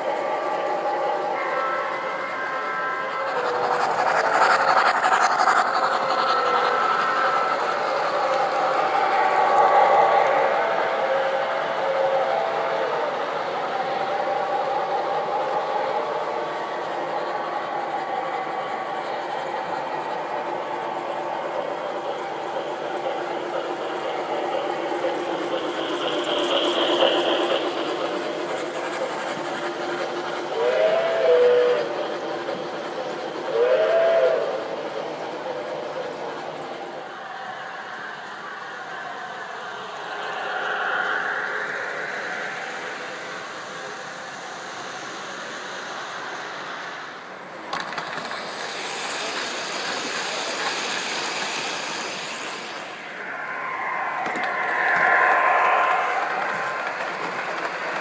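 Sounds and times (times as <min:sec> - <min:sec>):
model train wheels rumbling: 0:00.0 - 0:58.0
steam whistle blasts: 0:08.8 - 0:13.2, 0:30.6 - 0:32.0, 0:33.5 - 0:34.6.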